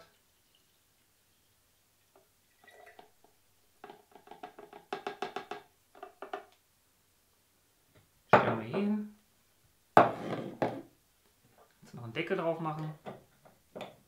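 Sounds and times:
juice pouring into bottle: 0:00.0 - 0:04.4.

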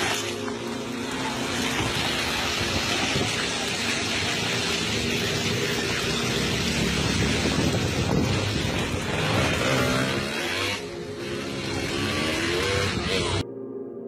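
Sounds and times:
landslide of mud and rock rushing: 0:01.0 - 0:10.2.

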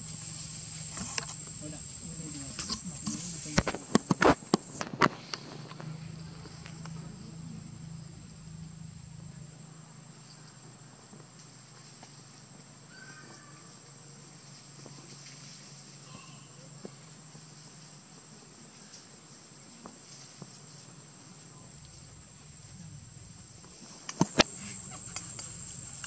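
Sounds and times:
high-pitched insect drone: 0:00.0 - 0:04.9, 0:24.2 - 0:26.0
low hum: 0:00.0 - 0:10.3, 0:21.5 - 0:26.0.

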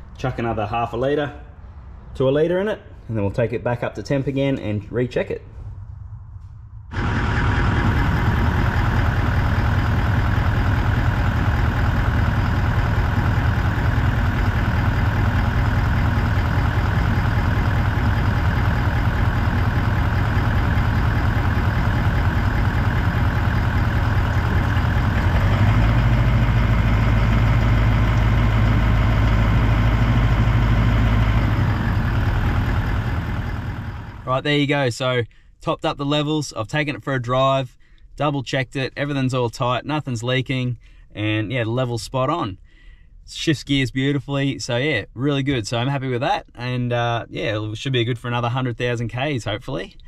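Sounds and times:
diesel engine idling: 0:06.9 - 0:34.4.

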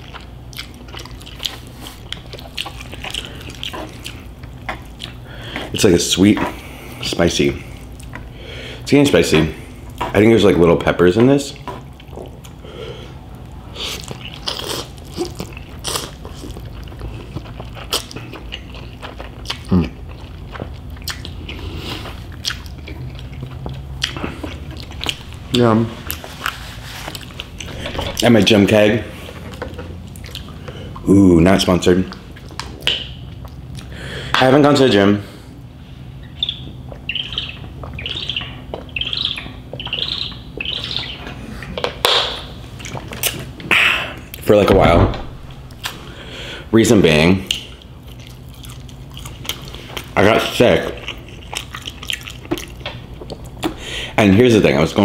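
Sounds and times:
breathy rush of air: 0:45.0 - 0:46.7.

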